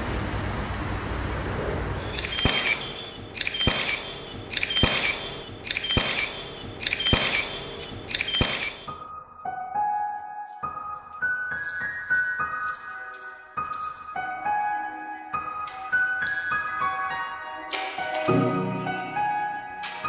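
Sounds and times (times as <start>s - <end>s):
camera shutter clicking: 2.0s - 8.9s.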